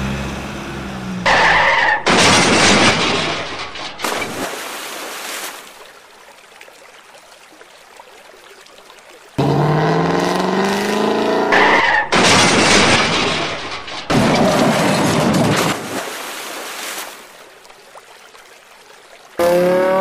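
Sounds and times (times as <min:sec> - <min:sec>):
tire squeal: 0:01.2 - 0:02.1, 0:11.4 - 0:12.1
loud skidding noise: 0:01.2 - 0:04.4
car engine revving: 0:09.4 - 0:13.5, 0:19.4 - 0:20.0.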